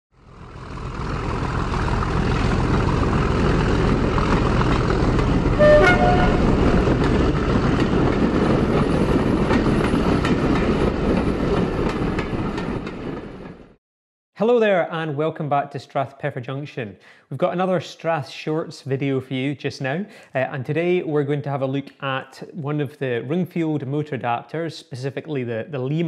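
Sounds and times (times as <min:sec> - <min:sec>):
train rumbling: 0:00.5 - 0:13.7
two-note train horn toot: 0:05.5 - 0:07.1.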